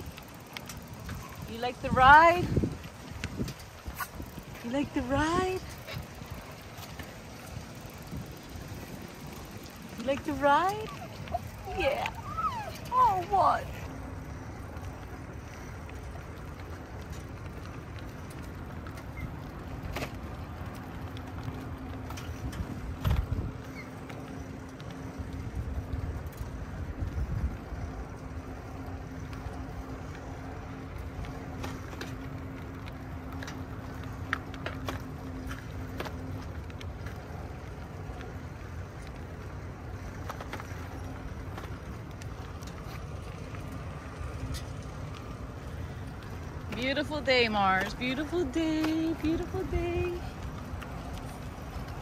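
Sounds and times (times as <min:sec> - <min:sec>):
bicycle tyres rolling on pavement: 0:00.0 - 0:52.0
wind on microphone: 0:01.0 - 0:06.5.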